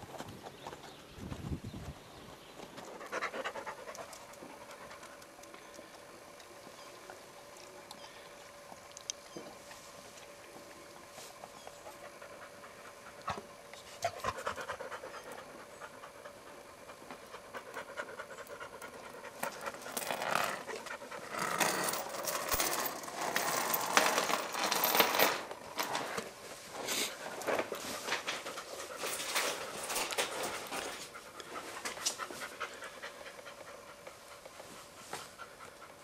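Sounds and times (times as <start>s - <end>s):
dog panting: 2.8s - 5.3s, 11.8s - 19.8s, 28.3s - 36.0s.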